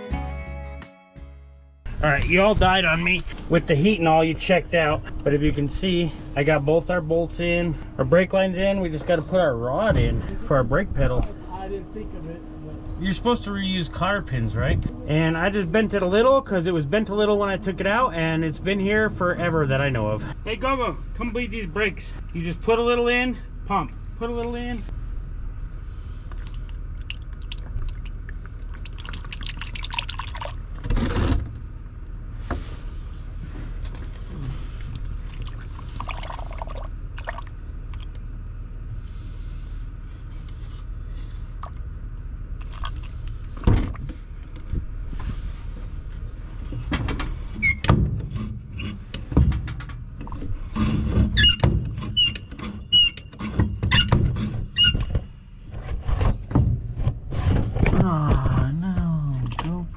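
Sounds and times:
pedal knocks and thunks: 0:43.6 - 0:44.9, 0:46.7 - 0:59.1
brake pedal squeaking: 0:46.7 - 0:57.3.

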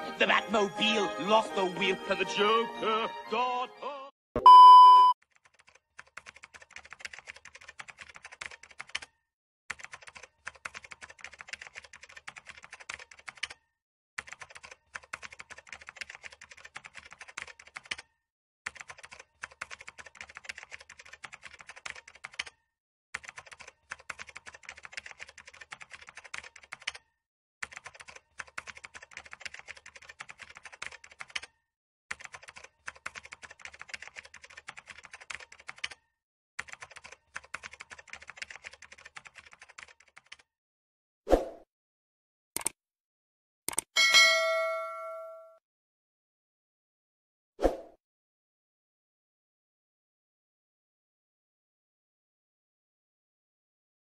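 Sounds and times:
rapid keyboard typing: 0:05.2 - 0:13.6, 0:14.2 - 0:18.1, 0:18.7 - 0:22.6, 0:23.2 - 0:36.0, 0:36.6 - 0:40.5.

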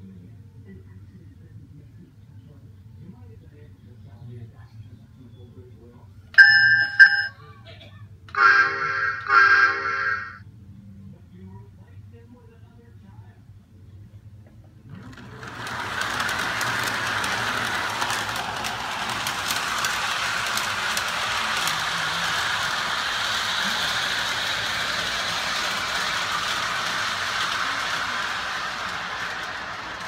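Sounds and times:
toy train motor and wheels: 0:06.4 - 0:07.3, 0:08.3 - 0:10.4, 0:14.9 - 0:30.0.

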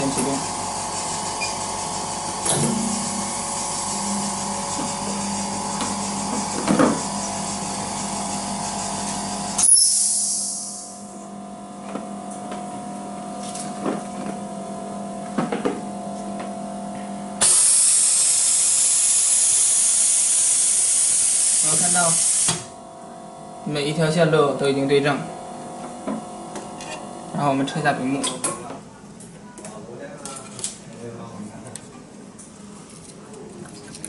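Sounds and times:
electrical hum with whine: 0:00.0 - 0:34.0
machine hissing: 0:02.7 - 0:11.0, 0:17.4 - 0:22.7.

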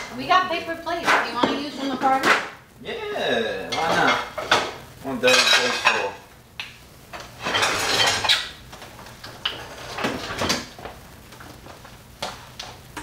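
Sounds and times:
dishes and utensils clattering: 0:03.7 - 0:06.2, 0:07.2 - 0:08.6, 0:09.5 - 0:10.7.

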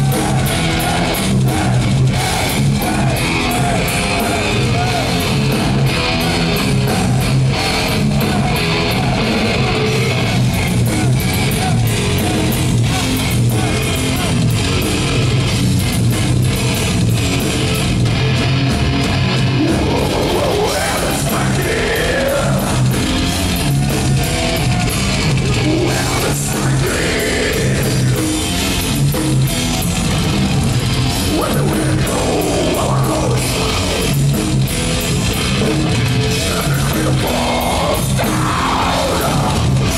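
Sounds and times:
vocals: 0:00.0 - 0:14.6, 0:19.4 - 0:23.1, 0:25.4 - 0:28.4, 0:31.2 - 0:34.5, 0:35.6 - 0:39.9
death metal band playing: 0:00.0 - 0:39.9.

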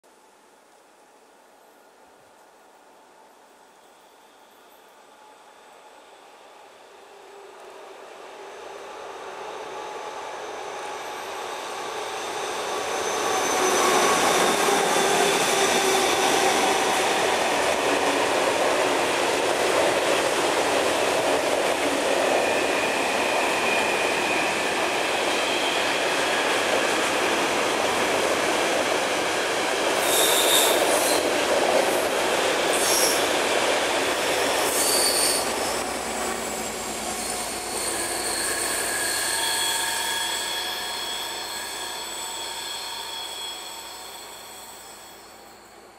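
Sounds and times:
wheel squeal: 0:30.0 - 0:31.2, 0:34.7 - 0:35.9, 0:36.5 - 0:45.8.

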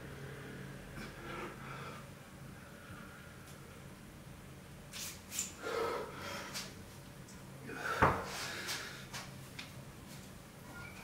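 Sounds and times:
man breathing hard and gasping: 0:05.6 - 0:06.8, 0:07.6 - 0:09.2.

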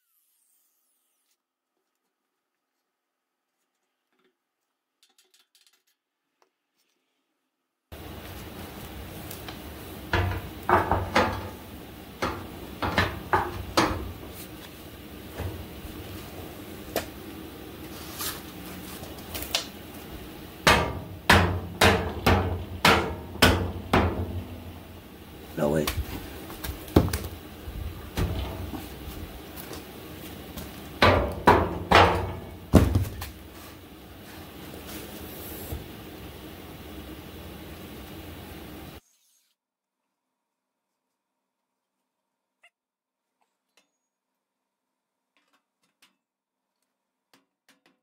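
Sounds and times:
metallic knocks on steel bracket: 0:10.1 - 0:11.6
metal clunks and knocks: 0:10.1 - 0:14.4, 0:28.1 - 0:29.0, 0:31.0 - 0:33.2.

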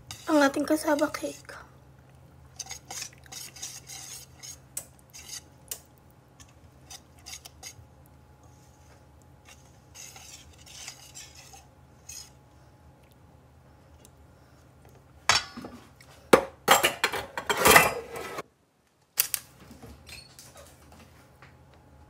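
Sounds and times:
whisk stirring batter: 0:00.0 - 0:01.6, 0:02.5 - 0:05.8, 0:06.4 - 0:12.4
whisk clinking on metal bowl: 0:02.6 - 0:05.4.

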